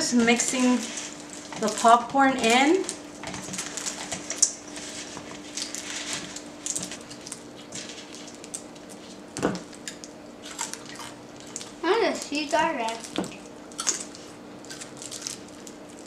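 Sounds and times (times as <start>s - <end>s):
popcorn crackling and rustling: 0.0s - 16.0s.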